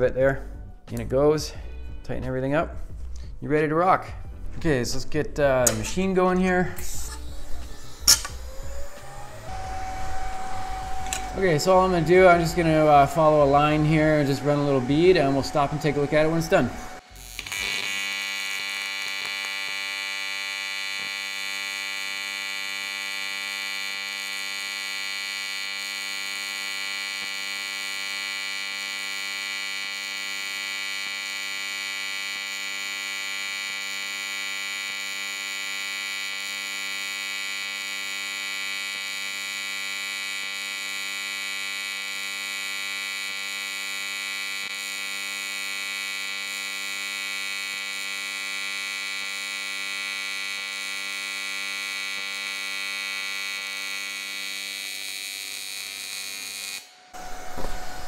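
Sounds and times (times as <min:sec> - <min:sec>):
welding arc buzzing: 0:05.6 - 0:58.0.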